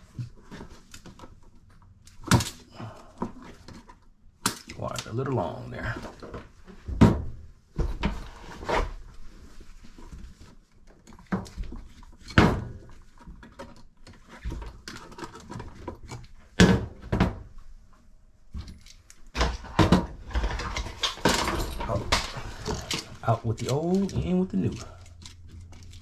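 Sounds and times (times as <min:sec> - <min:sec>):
rustling: 0:17.6 - 0:26.0.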